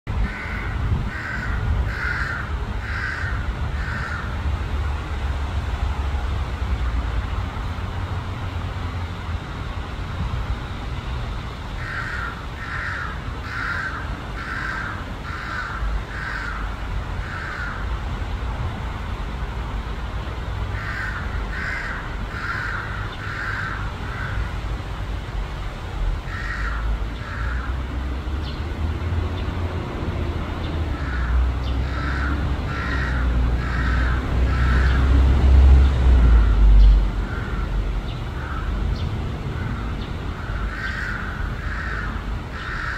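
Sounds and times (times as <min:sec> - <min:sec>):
crow cawing: 0:00.2 - 0:04.4, 0:11.8 - 0:17.9, 0:20.7 - 0:24.6, 0:26.2 - 0:27.8, 0:30.9 - 0:35.1, 0:37.2 - 0:38.8, 0:39.6 - 0:42.9.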